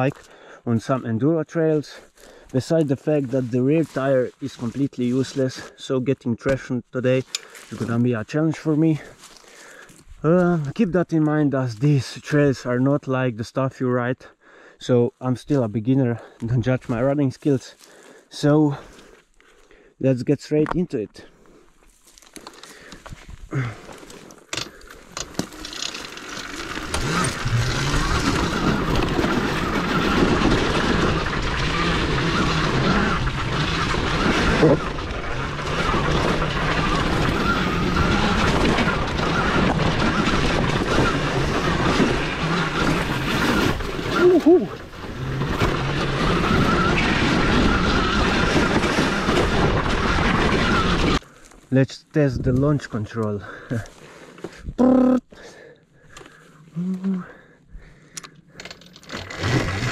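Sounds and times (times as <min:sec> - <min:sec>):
tyre and chassis rattle: 0:21.9 - 0:51.2, 0:58.1 - 0:59.9
rush of riding noise: 0:22.8 - 0:51.4, 0:59.1 - 0:59.9
electric motor hum: 0:25.0 - 0:51.2, 0:59.2 - 0:59.9.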